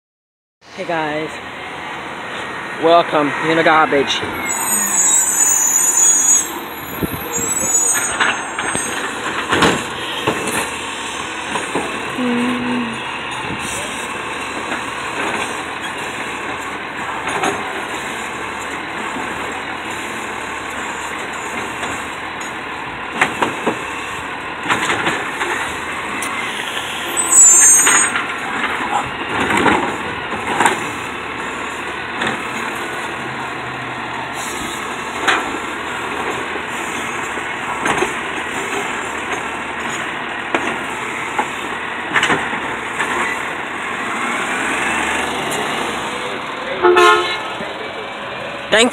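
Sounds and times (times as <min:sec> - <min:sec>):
lift arm squeal: 0:04.3 - 0:09.2, 0:26.4 - 0:28.2
bangs and clanks of cart: 0:08.1 - 0:10.8, 0:16.5 - 0:17.9, 0:24.6 - 0:25.8, 0:27.8 - 0:31.0, 0:37.3 - 0:43.5.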